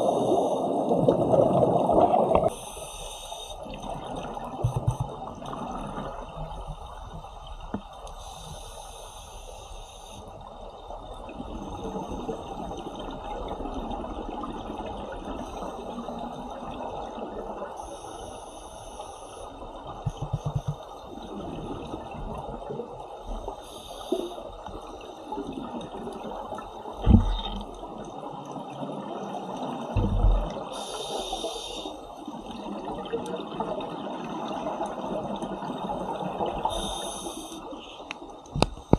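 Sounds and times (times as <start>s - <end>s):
underwater bubbling hiss: 0.0s - 38.9s
diver breath hissing out: 30.7s - 32.0s, 36.7s - 37.8s.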